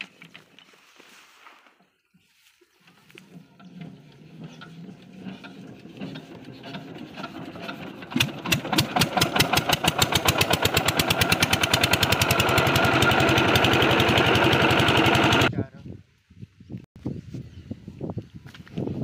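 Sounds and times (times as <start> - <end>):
diesel pump engine starting and running: 2.9 - 15.5.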